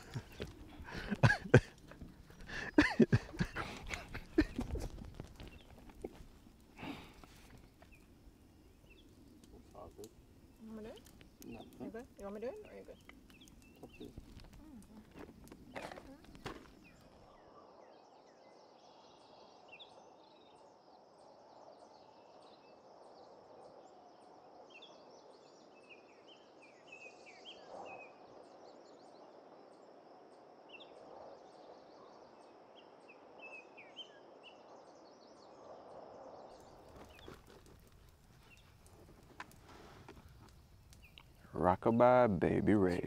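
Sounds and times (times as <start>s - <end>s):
campfire crackling: 0.0s - 17.8s, 36.1s - 43.0s
birds chirping: 0.0s - 20.2s, 36.5s - 43.0s
insect drone: 0.0s - 43.0s
soft rushing haze: 35.4s - 41.4s.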